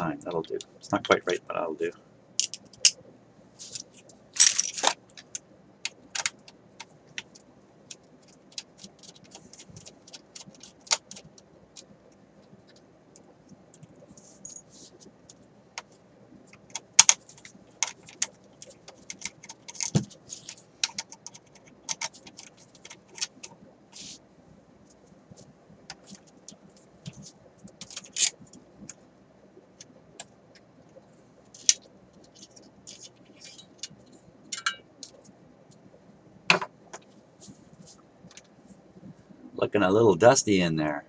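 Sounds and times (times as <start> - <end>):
small metal tools clinking: 4.4 - 5.4, 34.5 - 34.8.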